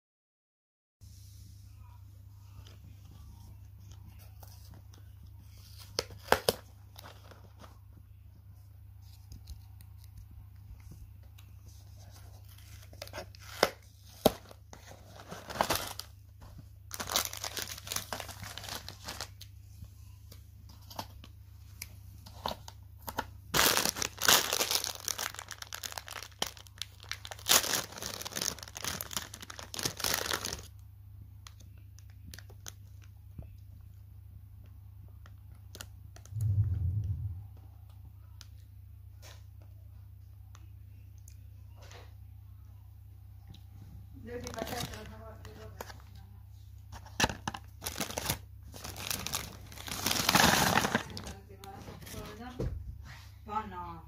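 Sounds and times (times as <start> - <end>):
plastic pouch crinkling and tearing: 5.6 - 7.5, 12.1 - 16.2, 16.9 - 19.5, 22.4 - 30.8, 44.3 - 46.0, 47.1 - 51.4
steady low hum: 33.1 - 39.1.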